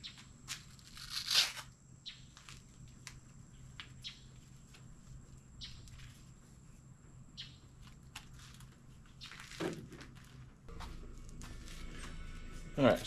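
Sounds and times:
faint low hum: 0.0s - 13.0s
rustles and clicks of handling: 7.7s - 11.8s.

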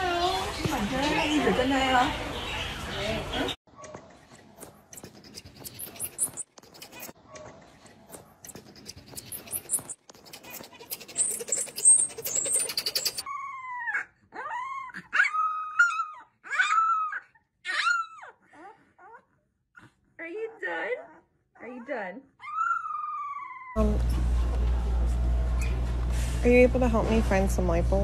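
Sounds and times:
marmosets chirping: 5.0s - 7.1s, 8.5s - 13.3s
puppy whimpering and yelping: 5.0s - 7.5s, 8.5s - 19.9s, 20.7s - 23.8s.

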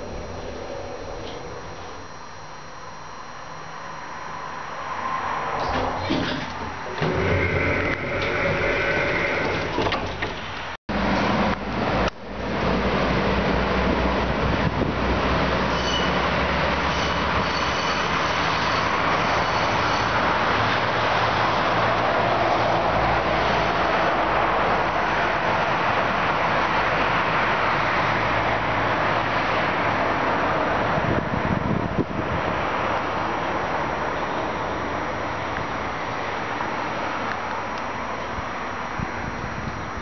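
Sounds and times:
expressway traffic noise: 3.9s - 40.0s
train pulling away: 4.4s - 11.6s.

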